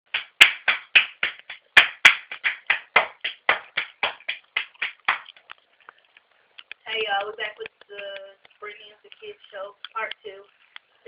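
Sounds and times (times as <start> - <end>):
hands clapping: 0.1 - 5.5.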